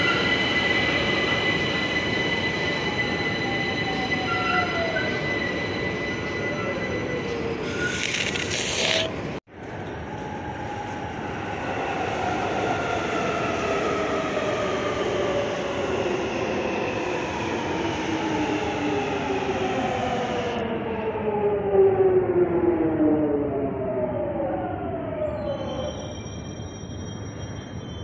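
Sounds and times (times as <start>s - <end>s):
train running noise: 0.0s - 14.5s.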